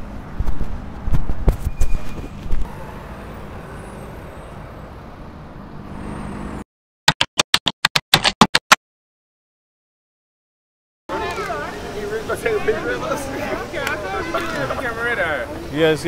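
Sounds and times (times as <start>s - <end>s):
street traffic noise: 0.0s - 6.6s, 11.1s - 16.0s.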